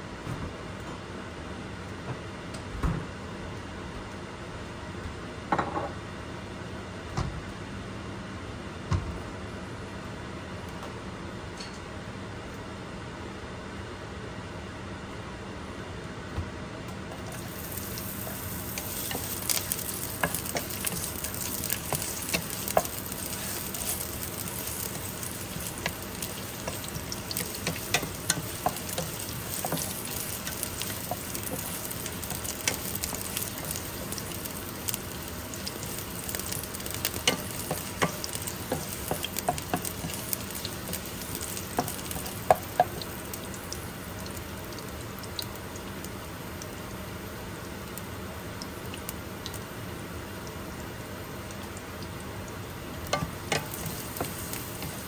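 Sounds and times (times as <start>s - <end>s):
ginger sizzling in hot oil: 17.3s - 55.0s
wooden spatula stirring: 17.6s - 34.3s, 35.6s - 43.1s, 53.1s - 55.0s.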